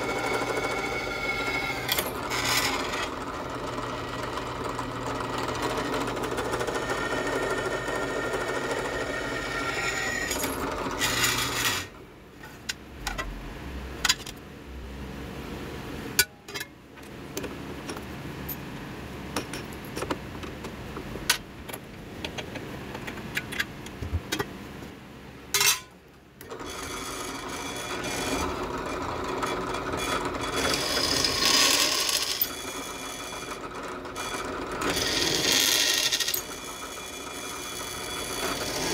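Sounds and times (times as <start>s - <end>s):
drill press boring steel: 0.0s - 11.9s, 26.4s - 38.9s.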